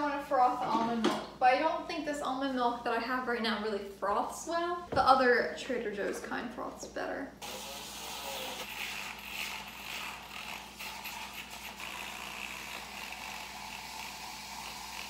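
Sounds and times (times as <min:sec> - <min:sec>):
milk frother whirring: 0:07.4 - 0:15.0.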